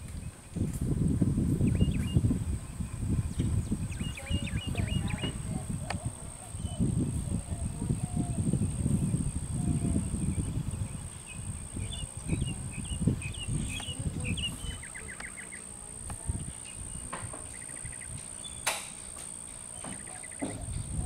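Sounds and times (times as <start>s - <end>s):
bird chirps and trills: 1.6s - 21.0s
sharp click: 18.6s - 19.3s.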